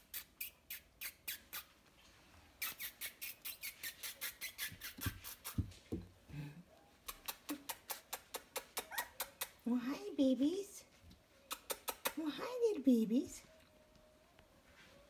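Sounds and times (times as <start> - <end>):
puppies squeaking: 0.0 - 1.9, 2.6 - 5.7, 7.0 - 9.6, 11.4 - 12.2.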